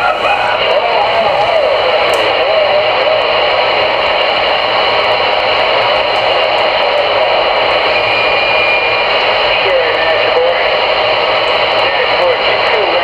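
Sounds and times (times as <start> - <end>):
radio static and hiss: 0.0 - 13.0.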